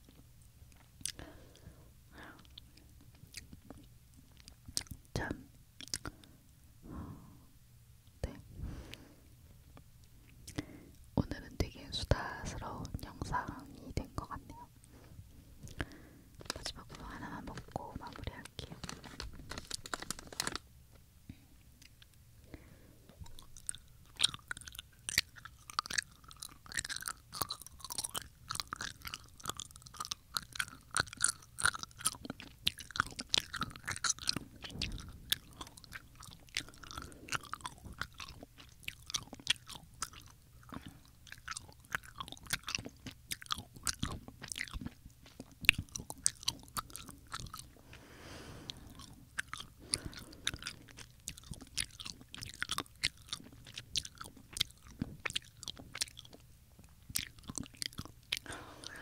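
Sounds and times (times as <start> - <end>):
chewing mouth clicks: 0.0 - 1.6, 2.4 - 6.3, 9.8 - 11.1, 15.6 - 20.6, 23.1 - 48.0, 48.6 - 59.0.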